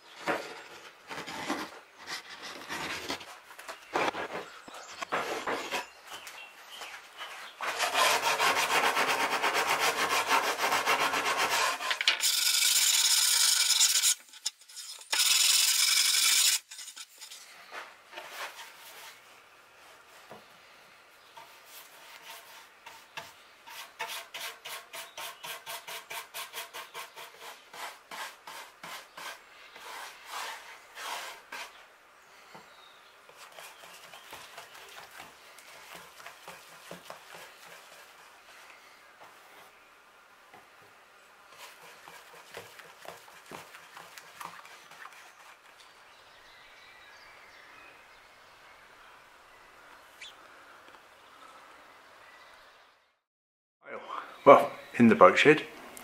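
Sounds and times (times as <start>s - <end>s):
tool scraping plywood: 0.1s - 6.0s, 7.3s - 19.2s, 21.4s - 31.8s, 33.3s - 38.3s, 41.5s - 45.8s
rubbing strokes on wood: 6.8s - 20.4s, 21.3s - 31.9s, 33.3s - 39.7s, 41.5s - 45.9s.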